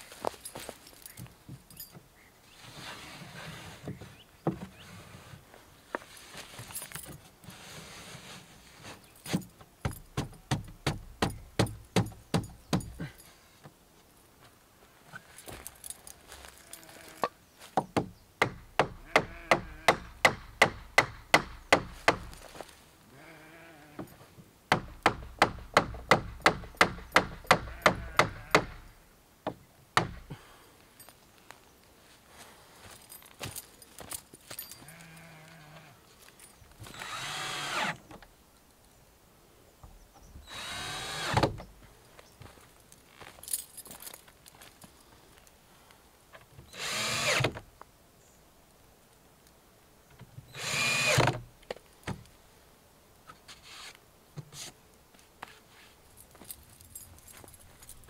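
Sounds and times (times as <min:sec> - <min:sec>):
hammer driving nails into wood: 0:17.8 - 0:22.4, 0:24.7 - 0:28.8.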